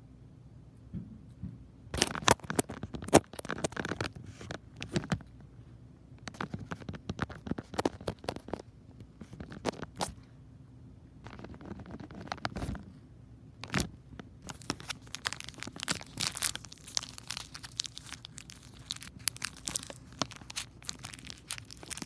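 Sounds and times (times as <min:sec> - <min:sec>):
plastic snack bag crinkling: 0:02.0 - 0:05.2, 0:06.4 - 0:08.6, 0:13.6 - 0:22.0.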